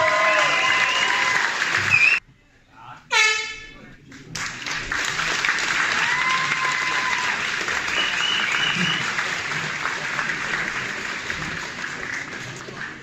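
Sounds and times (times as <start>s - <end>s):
audience applauding: 0.0s - 2.2s, 4.1s - 13.0s
long whistle: 0.3s - 2.2s, 7.9s - 9.1s.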